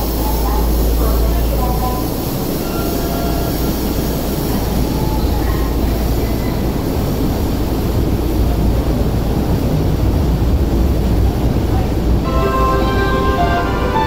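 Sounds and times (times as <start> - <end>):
subway train rumbling: 0.0 - 14.0.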